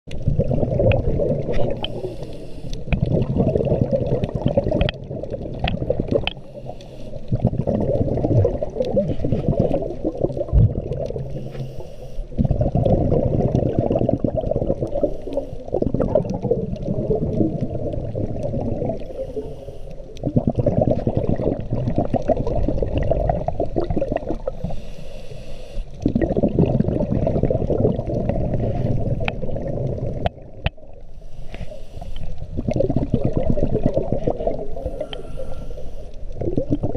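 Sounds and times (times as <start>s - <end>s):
gurgling exhaled bubbles: 0.1s - 24.8s, 25.9s - 31.1s, 32.2s - 36.9s
regulator hiss of inhaled breath: 1.8s - 2.9s, 6.4s - 7.3s, 11.3s - 12.4s, 15.0s - 15.7s, 19.1s - 20.1s, 24.6s - 26.0s, 31.1s - 32.4s, 34.7s - 36.2s.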